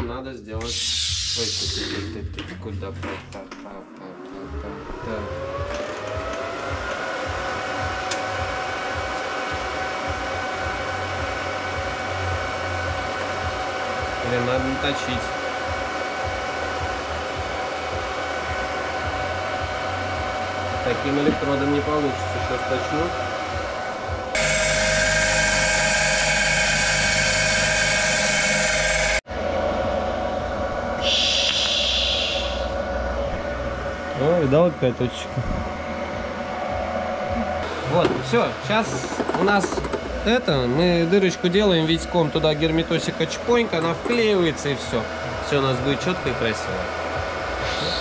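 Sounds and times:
electric fan blower whining: 3.6s - 48.0s
bench grinder grinding metal: 24.4s - 29.2s.

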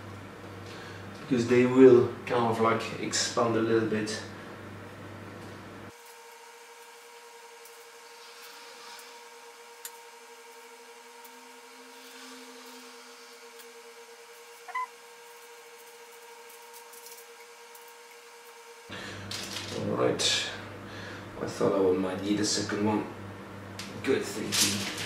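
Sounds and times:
faint steady hum: 0.0s - 5.9s, 7.5s - 25.0s
short squeak: 14.7s - 14.9s.

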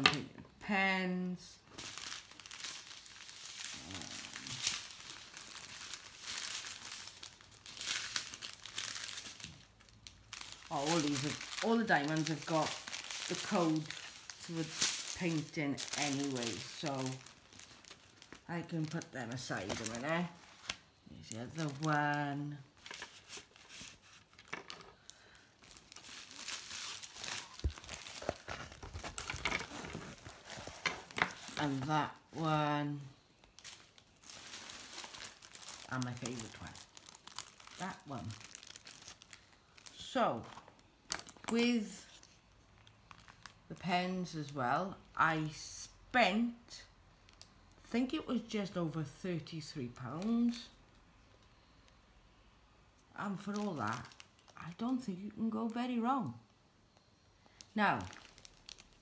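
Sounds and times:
plastic packaging crinkling: 1.6s - 44.6s, 53.3s - 55.1s, 57.5s - 59.0s.

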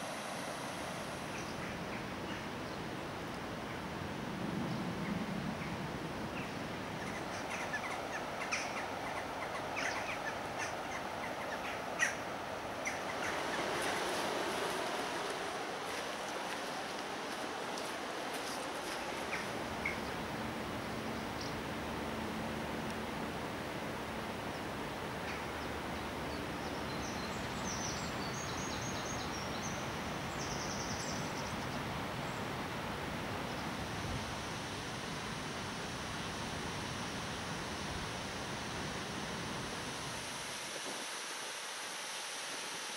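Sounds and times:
river water rushing: 0.0s - 4.4s, 5.6s - 42.9s
birds chirping: 5.6s - 21.8s
songbird chirping and trilling: 6.4s - 12.2s.

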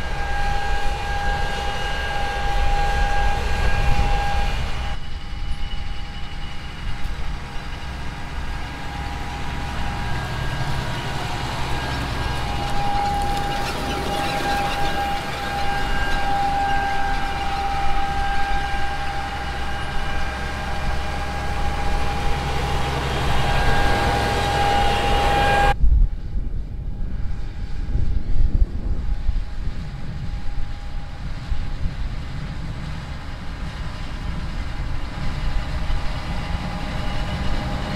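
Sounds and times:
motor humming with whine: 0.0s - 25.8s
low rumble: 0.0s - 37.9s.

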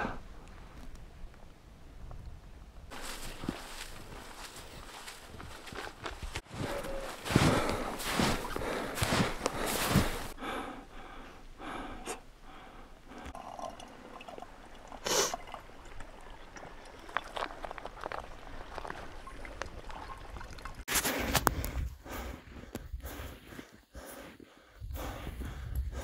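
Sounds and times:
water trickling into bottle: 13.1s - 20.9s.

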